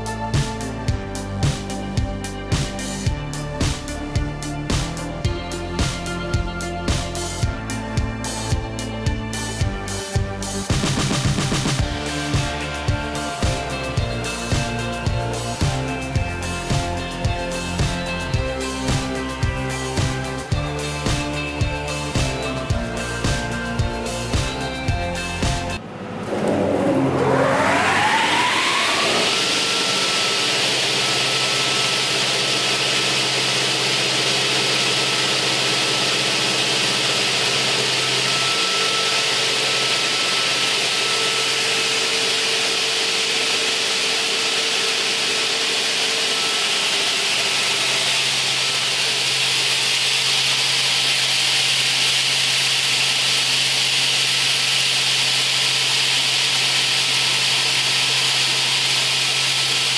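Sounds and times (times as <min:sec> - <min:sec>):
saw whining: 0:00.0 - 0:59.9.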